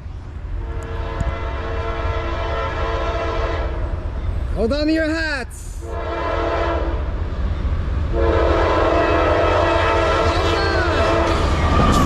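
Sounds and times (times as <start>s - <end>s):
freight train rumble: 0.0s - 12.0s
locomotive air horn blast: 0.6s - 4.0s, 5.8s - 7.1s, 8.1s - 11.5s.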